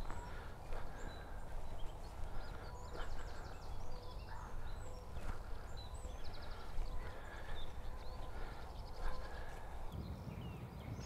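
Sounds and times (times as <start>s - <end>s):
footsteps on frozen grass: 0.0s - 9.9s
low wind rumble: 0.0s - 11.0s
small birds singing and chirping: 0.0s - 11.0s.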